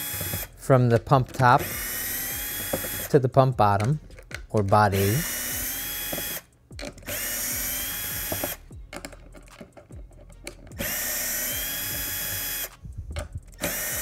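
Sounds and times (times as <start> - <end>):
electric screwdriver whine: 0.0 - 0.6, 1.6 - 3.1, 5.0 - 8.6, 10.8 - 12.8, 13.6 - 14.0
light clicks and handling noise: 8.8 - 10.8.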